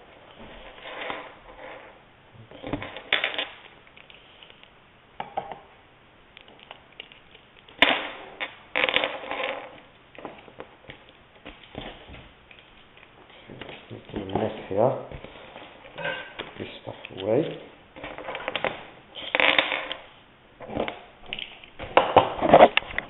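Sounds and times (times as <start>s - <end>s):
cable rustling: 6.3s - 23.0s.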